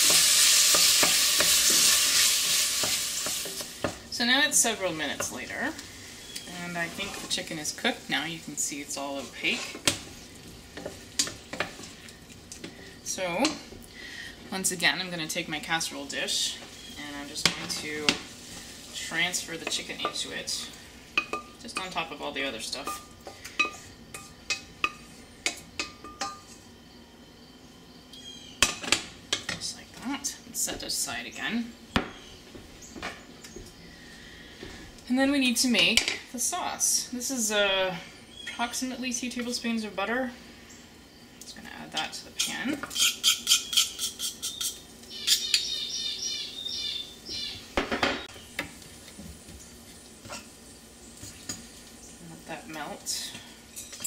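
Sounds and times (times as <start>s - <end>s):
utensil scraping metal saucepan: 6.3s - 10.0s, 42.4s - 45.7s
high chirps: 43.0s - 48.4s
kitchenware clunks: 47.8s - 48.3s.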